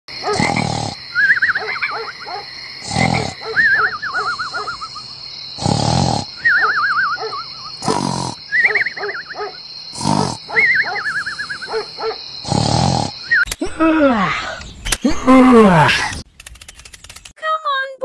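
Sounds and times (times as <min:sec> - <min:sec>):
cartoon snoring: 0:00.3 - 0:01.0, 0:02.8 - 0:03.5, 0:05.6 - 0:06.5, 0:07.8 - 0:08.5, 0:09.9 - 0:10.6, 0:12.4 - 0:14.3
falling whistle: 0:06.4 - 0:07.7.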